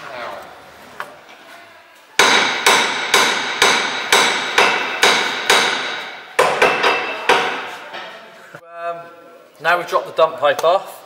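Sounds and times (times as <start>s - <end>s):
hammer blows ringing: 2.2s - 7.8s.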